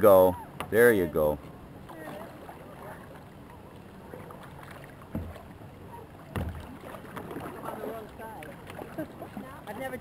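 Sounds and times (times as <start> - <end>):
water lapping and splashing: 0.0 - 10.0
low knocks: 5.1 - 5.5, 6.3 - 6.7.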